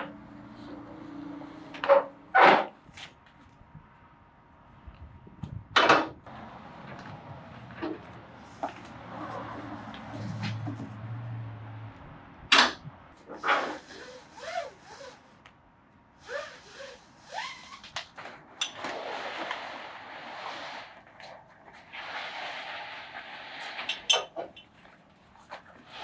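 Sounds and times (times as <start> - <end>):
webbing scraping against tarp: 7.0 - 11.0, 13.2 - 15.4, 16.2 - 26.0.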